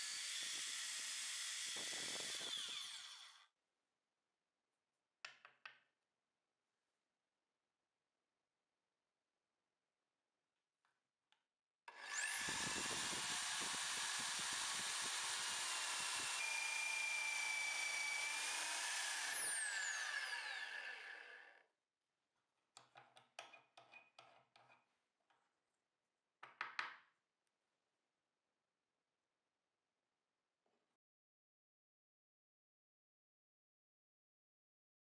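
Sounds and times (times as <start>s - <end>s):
drill press boring into plywood: 0.0s - 3.4s, 11.9s - 21.5s.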